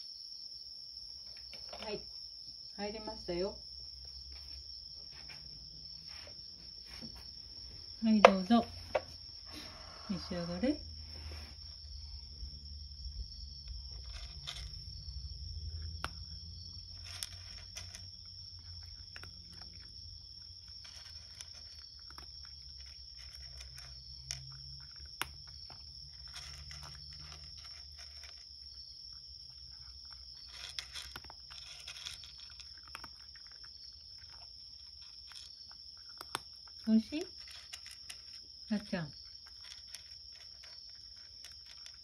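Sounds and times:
insect trill: 0.0 - 42.0
cat crunching dry kibble: 12.3 - 42.0.

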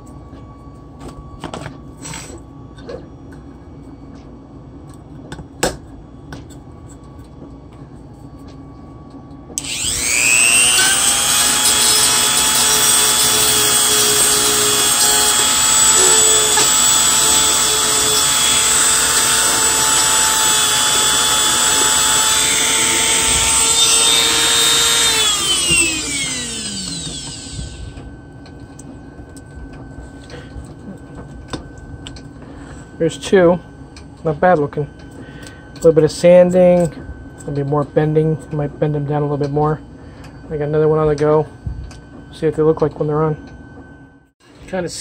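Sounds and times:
rotary tool sanding plastic: 9.6 - 27.8.

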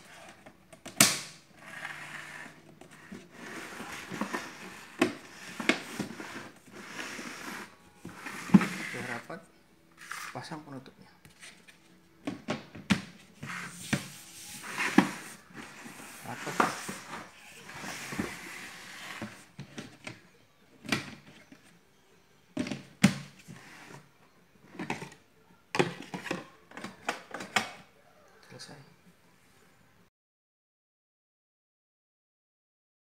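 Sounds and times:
plastic lid scraping: 1.5 - 9.3, 13.4 - 20.2.

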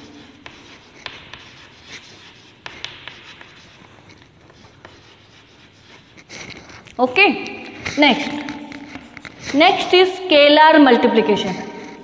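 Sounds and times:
chalk tapping on chalkboard: 0.0 - 9.9
chalk scratching on chalkboard: 0.0 - 10.3, 11.1 - 12.0.

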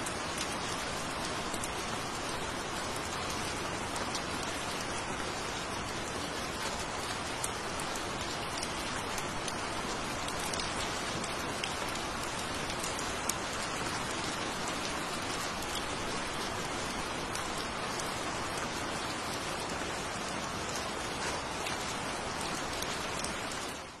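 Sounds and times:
sharp raindrop ticks: 0.0 - 24.0
steady rain falling: 0.0 - 24.0.

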